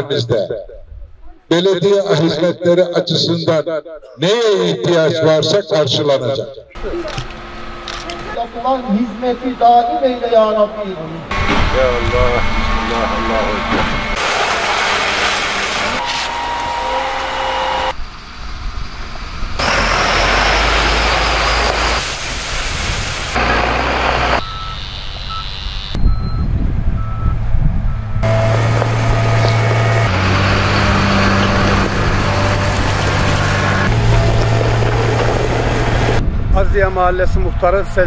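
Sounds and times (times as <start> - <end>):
heavy machinery diesel engines: 6.8 - 36.6
reversing alarm beeping: 7.2 - 14.2, 23.4 - 31.6.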